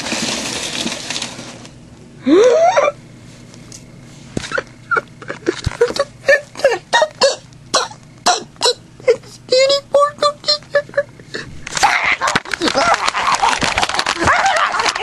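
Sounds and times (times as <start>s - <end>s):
person crying out in excitement: 14.2s - 15.0s.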